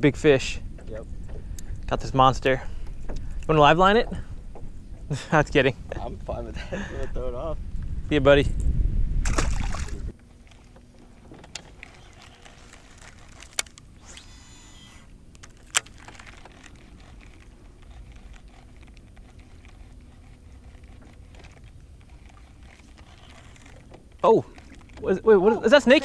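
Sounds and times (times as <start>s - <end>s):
soft ticking of line: 2.8s - 5.2s
fishing reel whir: 11.5s - 25.0s.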